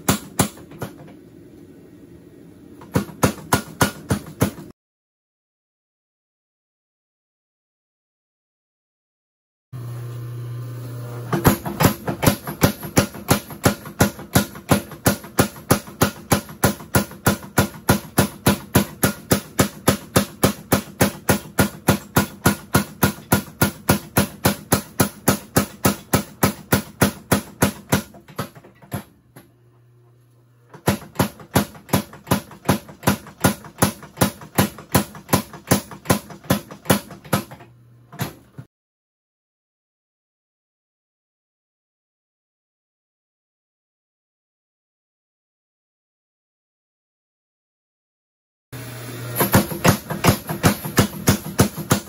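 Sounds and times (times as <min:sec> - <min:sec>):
machine hum: 0:09.8 - 0:13.0
power hammer striking hot steel: 0:49.4 - 0:52.0.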